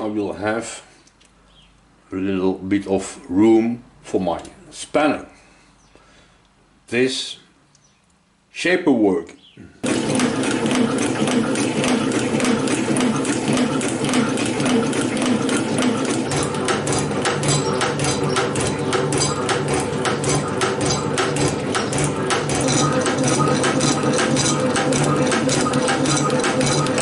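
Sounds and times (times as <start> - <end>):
metal shaper machine hum: 9.8 - 27.0
regular clicking of machine strokes: 9.8 - 27.0.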